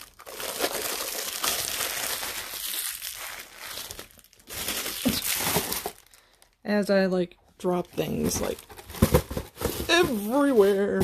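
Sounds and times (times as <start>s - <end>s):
plastic wrapping crinkling: 0.0s - 6.6s.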